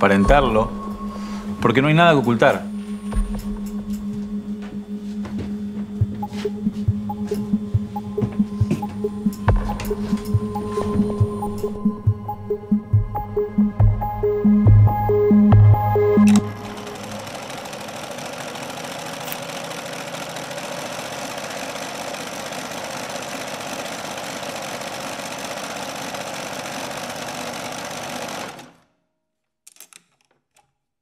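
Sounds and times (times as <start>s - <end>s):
sewing machine running: 15.0s - 28.9s.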